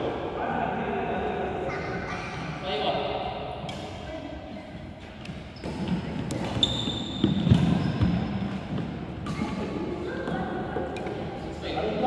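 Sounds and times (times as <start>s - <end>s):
shoe squeak: 5.4s - 8.6s.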